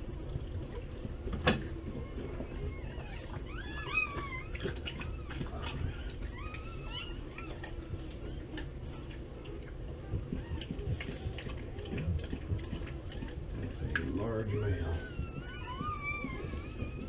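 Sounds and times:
puppies squealing: 1.9 - 9.0, 13.2 - 17.0.

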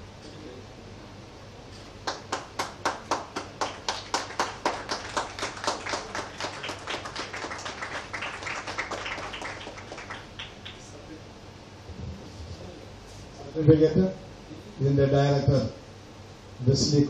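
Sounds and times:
audience clapping: 2.0 - 11.0
close hands clapping steadily: 2.0 - 11.0.

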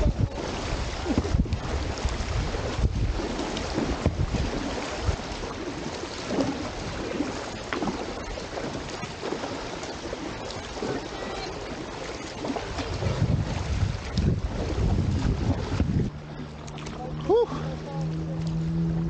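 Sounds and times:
kayak paddle splashing water: 0.0 - 19.0
wind buffeting microphone: 0.0 - 19.0.

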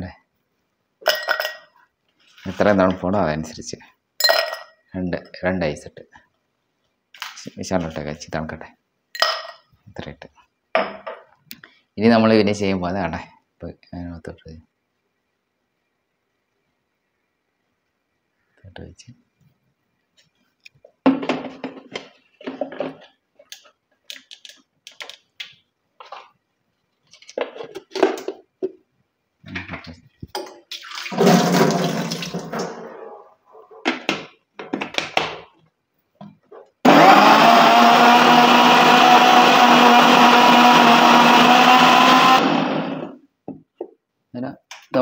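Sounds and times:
blender whining: 36.8 - 43.2.

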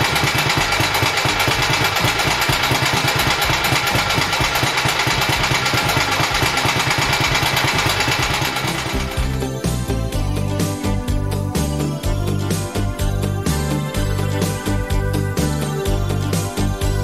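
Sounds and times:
motorcycle engine idling: 0.0 - 11.1.

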